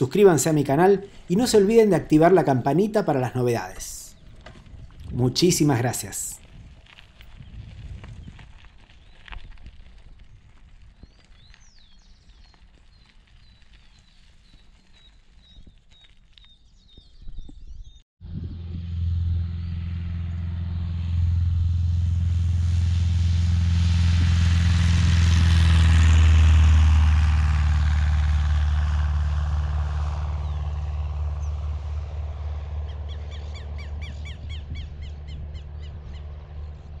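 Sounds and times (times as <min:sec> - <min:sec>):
propeller plane engine drone: 0:18.2 - 0:37.0.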